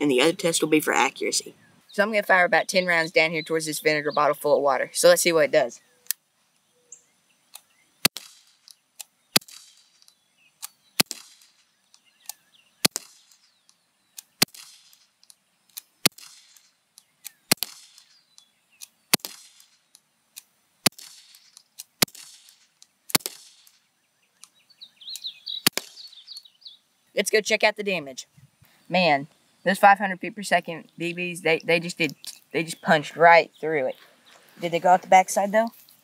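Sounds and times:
air pistol shots: 8.0 - 8.7, 9.3 - 10.0, 11.0 - 11.6, 12.8 - 13.4, 14.4 - 15.0, 16.0 - 18.2, 19.1 - 19.8, 20.8 - 23.8, 25.6 - 26.1.

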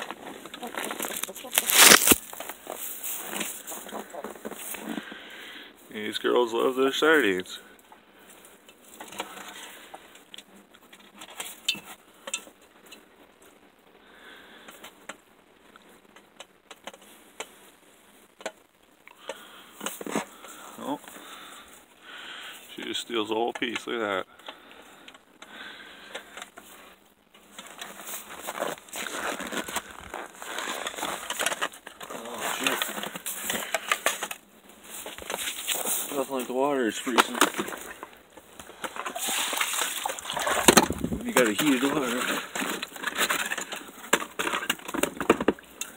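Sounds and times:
chickens scratching in straw: 0.2 - 4.7.

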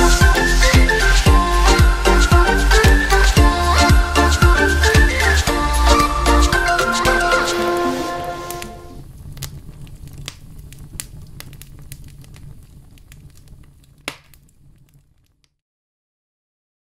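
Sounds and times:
low rumble: 0.0 - 7.3, 8.2 - 14.6
crackles and clicks: 6.0 - 15.6.

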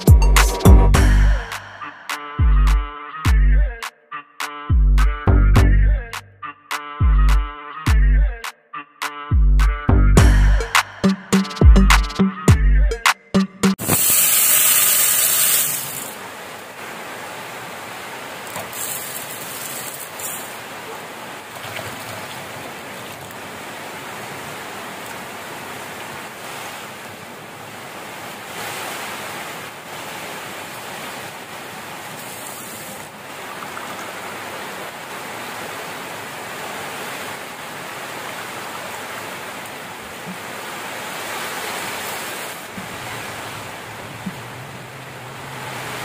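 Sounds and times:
heavy rain falling: 13.8 - 46.0.

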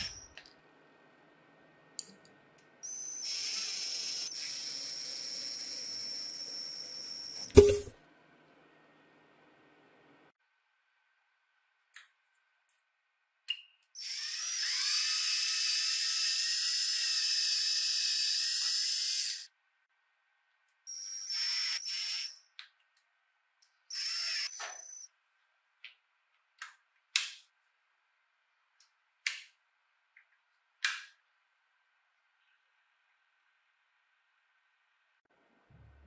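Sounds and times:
power drill running: 14.0 - 19.4, 23.9 - 25.0.

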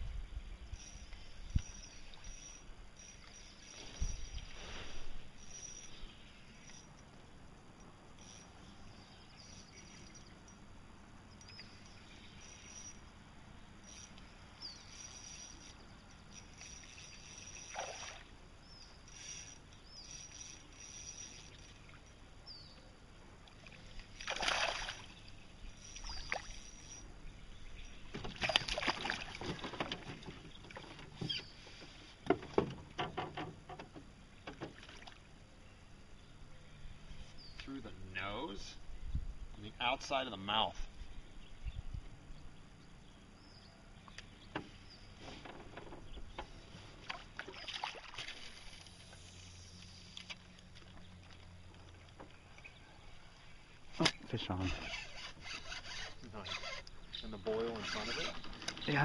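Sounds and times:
bird chirps: 8.2 - 10.6, 11.3 - 15.8, 18.6 - 23.0, 25.0 - 28.2, 30.5 - 31.6, 36.2 - 37.9, 55.4 - 59.0
fish splashing in water: 24.1 - 25.2, 28.3 - 29.7, 47.0 - 48.9
knocks against boat: 28.1 - 31.4, 32.2 - 34.8.

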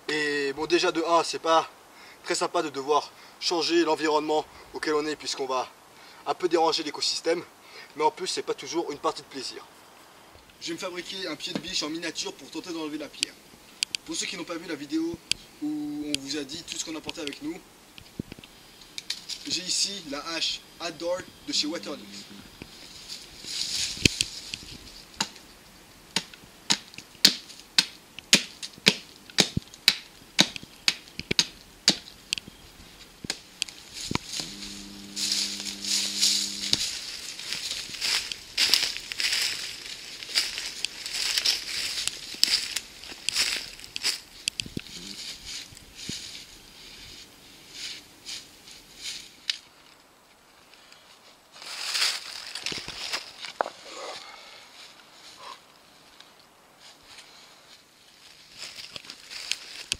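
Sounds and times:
dry leaves rustling: 18.4 - 59.9
axe chopping wood: 26.2 - 32.1
soil scraping: 32.8 - 47.1.

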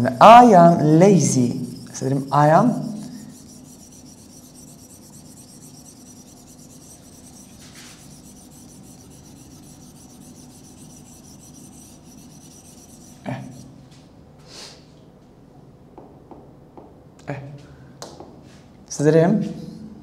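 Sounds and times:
hand rubbing on glass whiteboard: 1.1 - 13.7.

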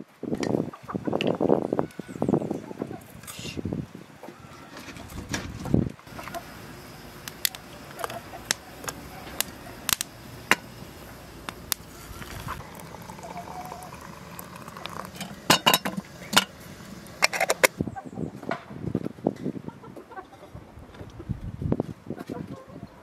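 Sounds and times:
hot water pouring into kettle: 6.1 - 17.8
sharp crackling clicks: 7.2 - 10.7.

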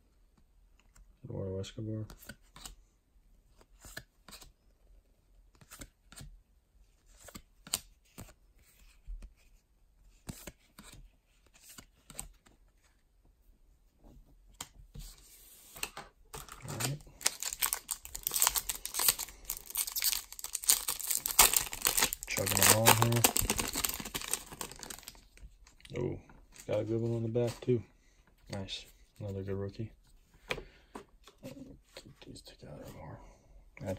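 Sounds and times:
cards flipped with soft clicks: 7.1 - 9.5
foil wrapper crinkling and tearing: 16.7 - 25.2.

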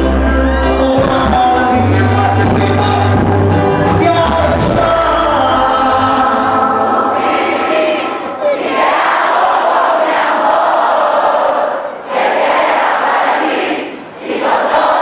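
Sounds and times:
live reggae band: 0.0 - 12.0
crowd singing along: 0.2 - 15.0
crowd cheering: 4.5 - 11.9.

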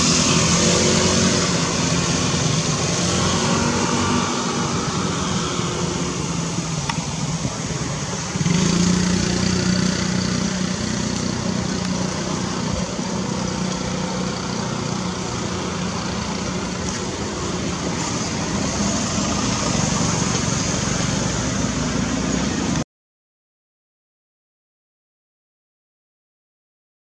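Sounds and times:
constant hiss: 1.5 - 22.6.

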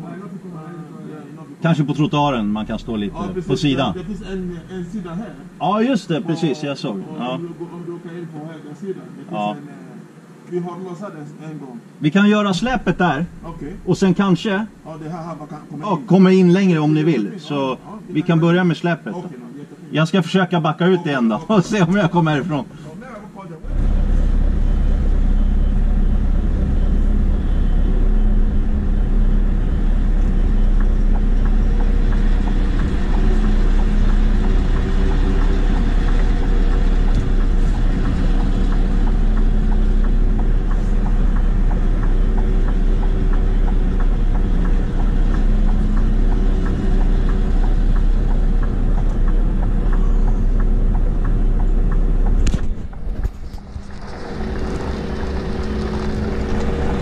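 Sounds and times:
diesel truck engine droning: 1.8 - 6.3, 12.3 - 15.6, 21.3 - 57.0.

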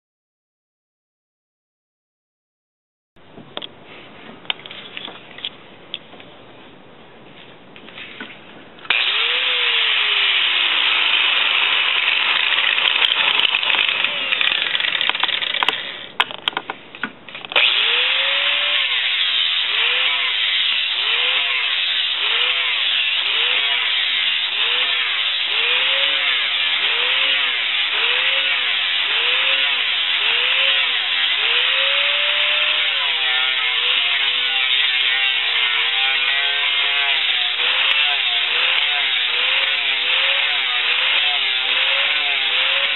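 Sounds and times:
angle grinder sanding wood: 8.9 - 16.0, 17.6 - 42.9.

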